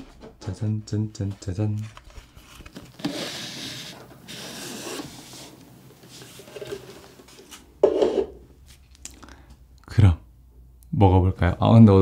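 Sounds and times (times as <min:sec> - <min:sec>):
plastic sleeve rubbing: 0:01.9 - 0:07.6.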